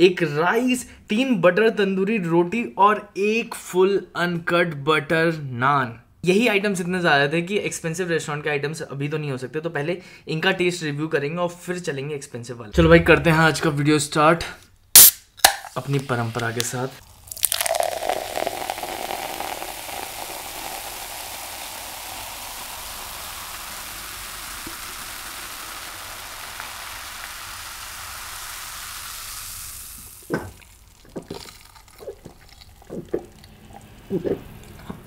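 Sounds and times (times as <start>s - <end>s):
soda pouring and fizzing: 15.7s - 35.0s
sips and gulps: 17.2s - 22.2s, 30.0s - 35.0s.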